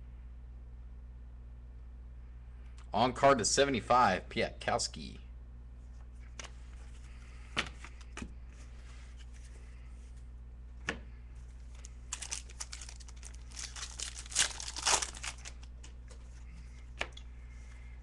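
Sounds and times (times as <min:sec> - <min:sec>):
foil wrapper tearing and crinkling: 0:11.7 - 0:15.7.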